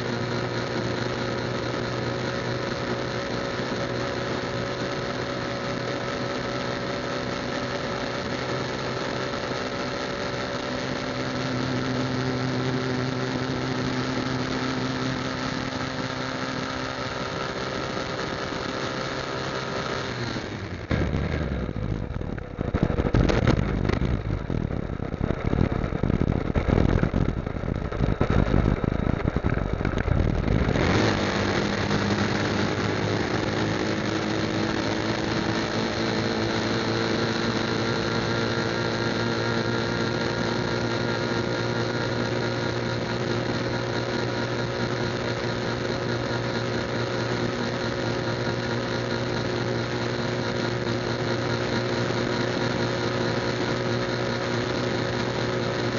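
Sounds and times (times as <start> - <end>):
motorcycle engine cruising: 0.0 - 55.9
road noise: 0.0 - 55.9.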